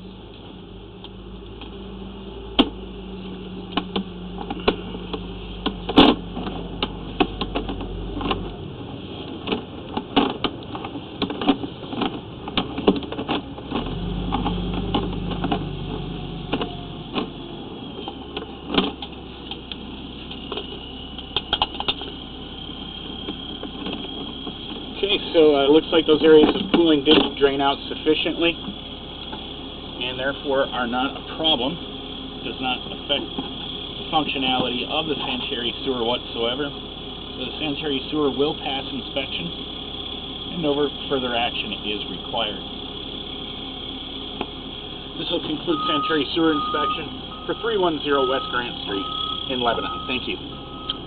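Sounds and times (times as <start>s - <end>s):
low hum: 0.0s - 51.0s.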